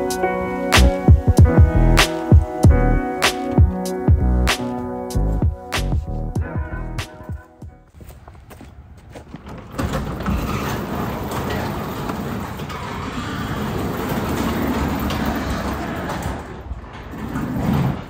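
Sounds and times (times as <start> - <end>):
garage door rolling along tracks: 0.0 - 5.4, 9.1 - 18.0.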